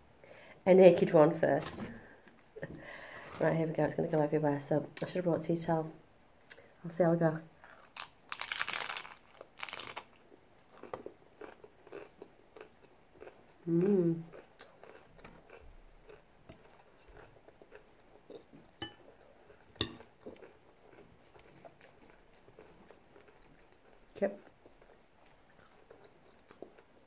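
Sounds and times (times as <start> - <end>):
taco shell crunching: 7.6 - 13.4, 14.3 - 17.8
chewing with crackling crunches: 7.6 - 27.0
person humming: 13.7 - 14.3.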